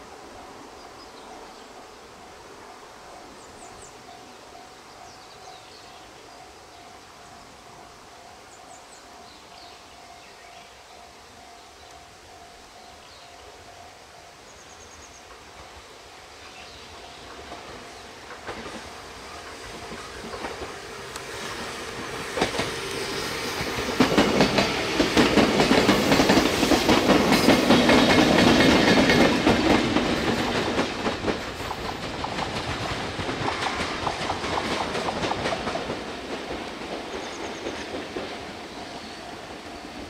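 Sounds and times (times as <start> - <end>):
train passing: 0.0 - 40.0
wheels clacking over rail joints: 17.2 - 40.0.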